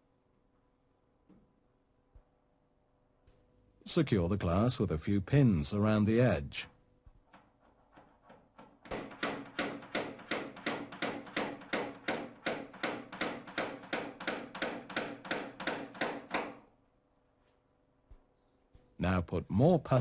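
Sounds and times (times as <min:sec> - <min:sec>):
small hammer tapping pins: 0:07.3 - 0:16.6.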